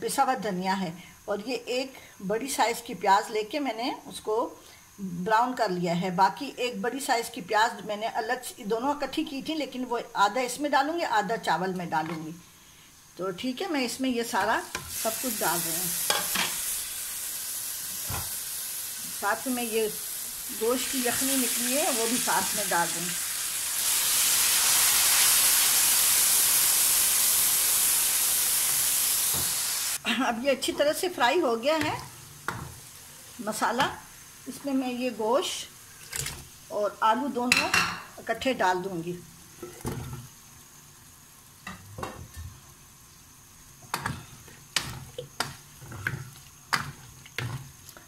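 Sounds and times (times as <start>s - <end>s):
stock sizzling in hot oil: 14.2s - 30.0s, 30.6s - 38.2s, 39.2s - 48.0s.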